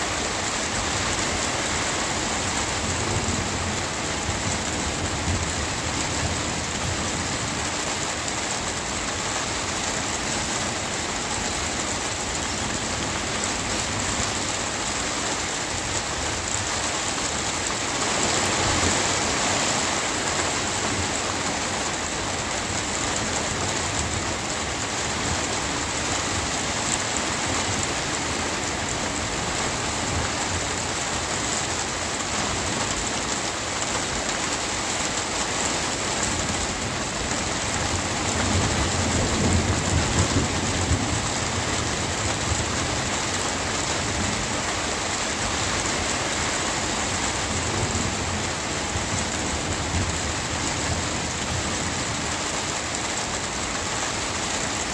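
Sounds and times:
steady rain falling: 0:00.0 - 0:54.9
low rumble of thunder: 0:36.4 - 0:45.1.

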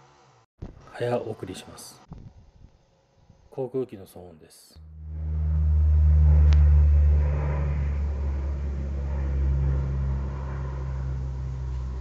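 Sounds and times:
aircraft droning rumble: 0:04.8 - 0:12.0.

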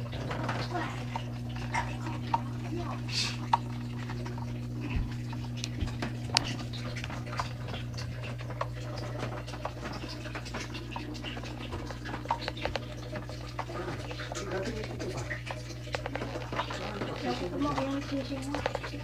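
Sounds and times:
aquarium filter humming: 0:00.0 - 0:19.0
light ticks and patter: 0:00.0 - 0:19.0.

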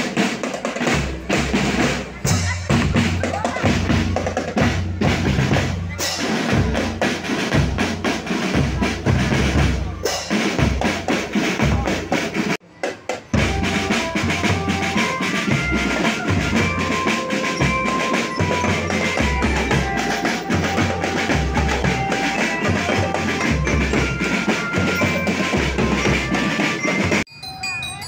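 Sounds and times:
drum-heavy dance music: 0:13.2 - 0:27.2.

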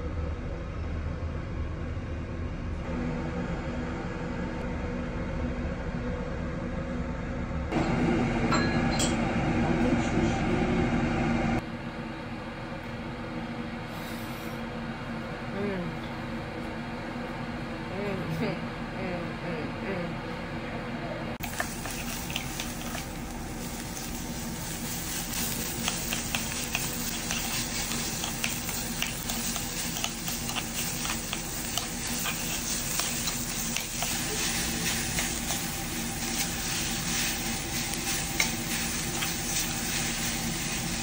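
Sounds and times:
beef sizzling on a grill: 0:21.4 - 0:41.0.

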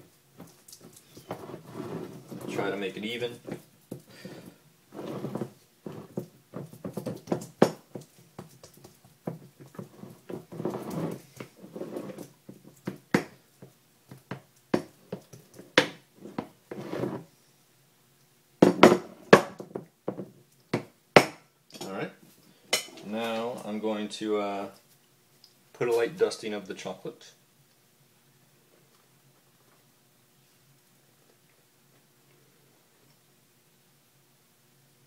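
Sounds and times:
scraper scraping paste: 0:01.2 - 0:02.7.

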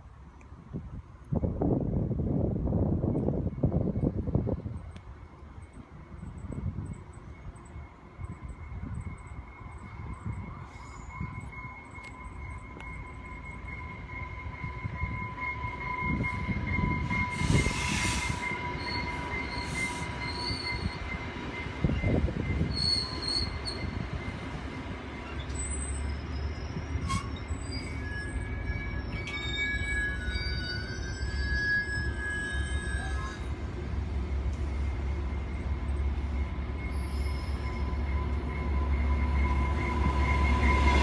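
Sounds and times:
train rolling along platform: 0:00.0 - 0:41.0
high steady squeal: 0:05.5 - 0:41.0
short wheel squeals: 0:16.0 - 0:21.2, 0:21.9 - 0:24.4, 0:25.2 - 0:33.6.

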